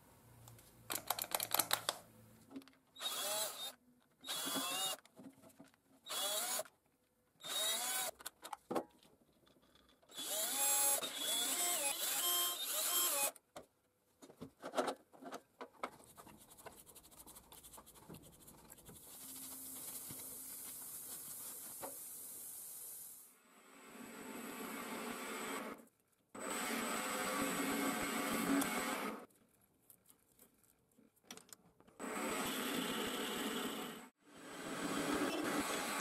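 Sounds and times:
cordless drill motor whine: 0:03.0 - 0:03.7, 0:06.1 - 0:06.6, 0:10.1 - 0:13.3.

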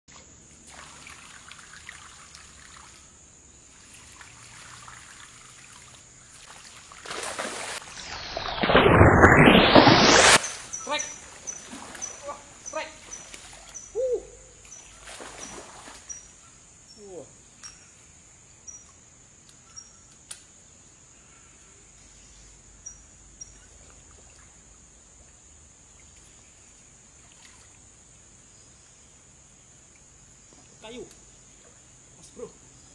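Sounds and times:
creek water trickling and splashing: 0:00.1 - 0:19.7, 0:21.9 - 0:32.9
high-pitched insect drone: 0:07.9 - 0:20.2.

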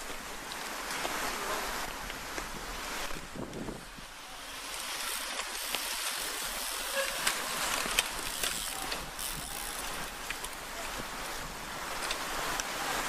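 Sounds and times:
bikes clicking past: 0:00.0 - 0:13.0
wind hiss on microphone: 0:00.0 - 0:13.0.

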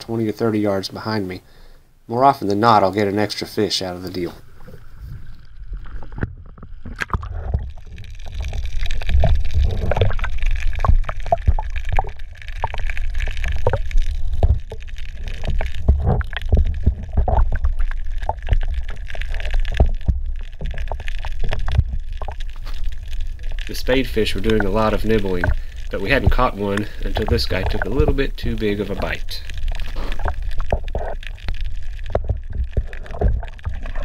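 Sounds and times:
muffled underwater water sloshing: 0:04.1 - 0:34.0.

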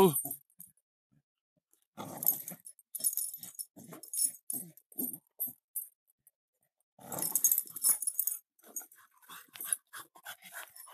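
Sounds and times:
dogs growling: 0:02.0 - 0:02.6, 0:07.0 - 0:07.9.

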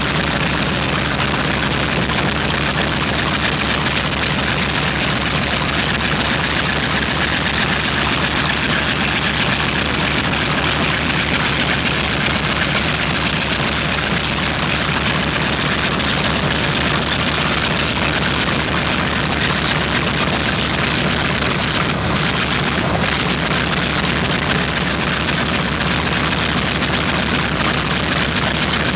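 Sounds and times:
aircraft radial engines running: 0:00.0 - 0:28.9.

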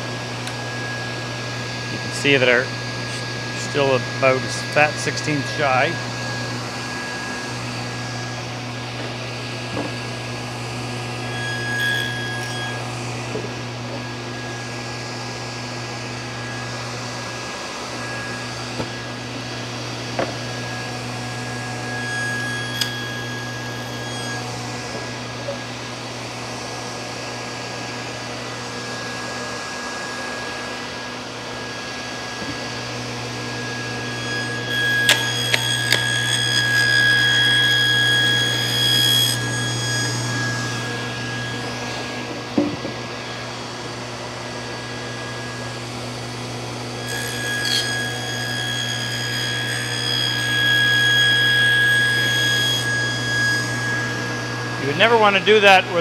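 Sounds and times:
table saw cutting wood: 0:00.0 - 0:56.0
light knocks on saw: 0:09.7 - 0:10.0.

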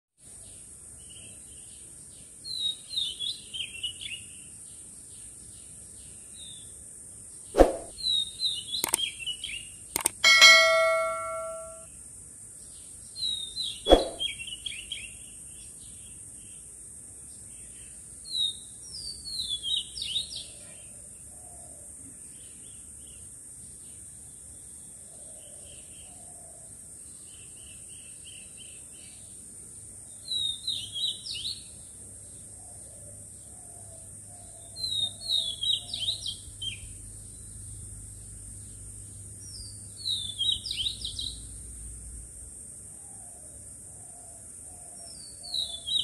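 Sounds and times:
songbird singing: 0:00.3 - 0:11.8, 0:17.3 - 0:42.0, 0:42.8 - 0:46.0.

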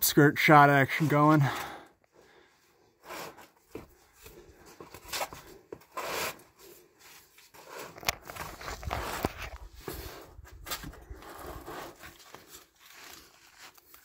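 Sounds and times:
clothing scraping against rock: 0:03.0 - 0:14.0.

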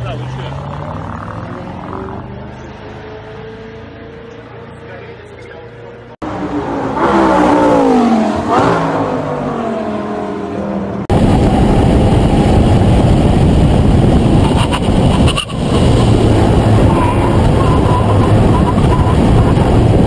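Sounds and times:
wind tyre and engine rush: 0:00.0 - 0:20.0.

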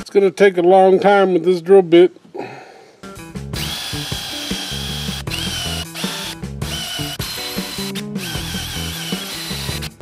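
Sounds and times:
cordless drill boring into steel: 0:03.6 - 0:10.0.

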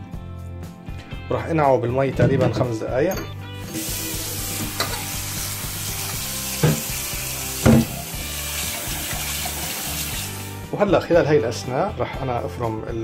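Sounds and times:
tap running into steel bowl: 0:04.5 - 0:05.2, 0:06.1 - 0:07.0, 0:07.6 - 0:10.1.

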